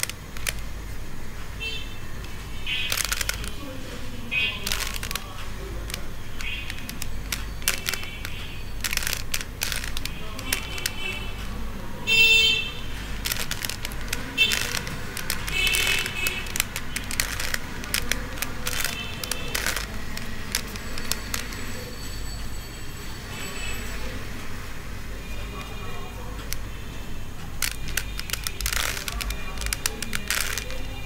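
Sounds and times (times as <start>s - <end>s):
puzzle cube clicking: 0.0s - 0.8s, 2.2s - 11.5s, 12.7s - 21.9s, 25.4s - 26.7s, 27.4s - 31.0s.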